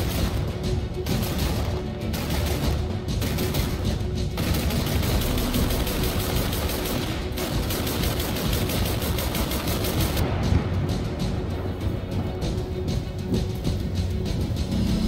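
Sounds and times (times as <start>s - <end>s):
autocannon firing rapidly: 0.0s - 10.2s
music track: 0.0s - 15.0s.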